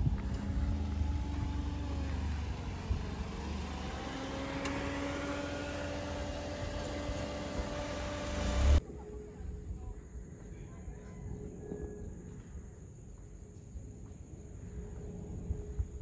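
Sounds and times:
vehicle engine running: 0:00.0 - 0:08.8.

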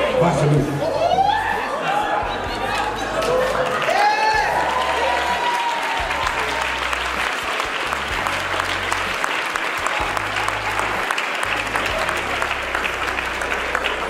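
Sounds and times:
congregation applauding: 0:02.5 - 0:14.0
low bass notes of music: 0:06.0 - 0:09.2, 0:09.8 - 0:14.0.

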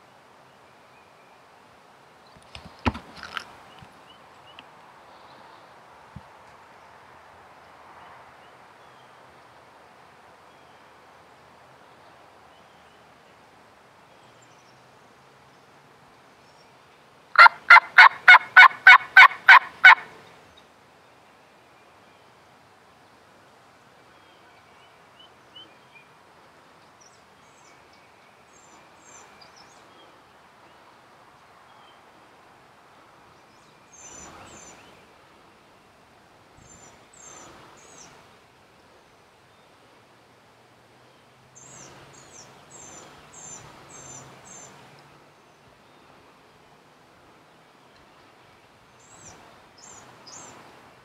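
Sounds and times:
turkey yelps: 0:17.4 - 0:20.1.

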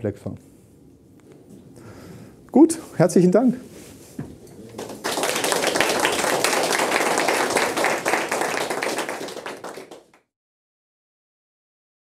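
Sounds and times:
audience applauding: 0:04.6 - 0:10.2.

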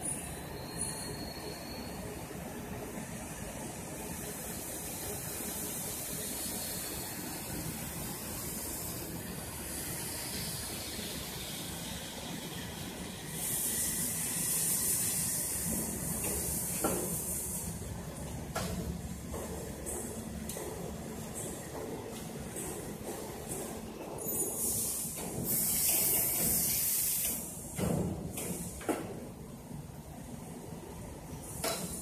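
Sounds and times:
loud hiss: 0:13.3 - 0:17.8, 0:24.6 - 0:27.6.

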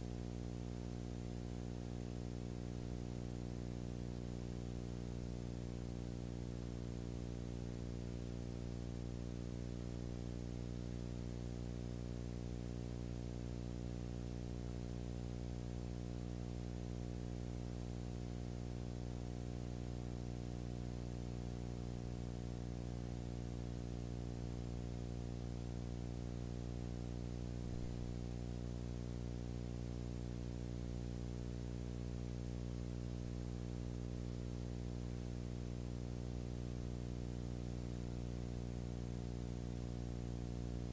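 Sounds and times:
electrical hum: 0:25.7 - 0:40.9.

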